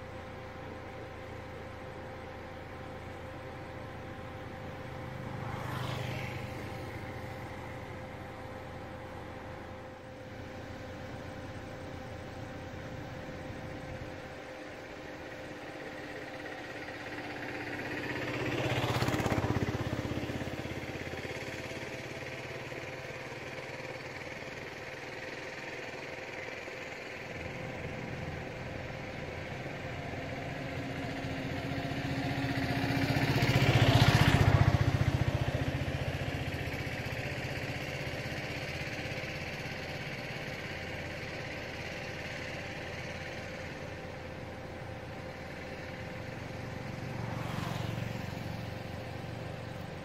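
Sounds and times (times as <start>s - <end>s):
steady engine hum: 0.0s - 50.0s
vehicles passing by: 1.3s - 50.0s.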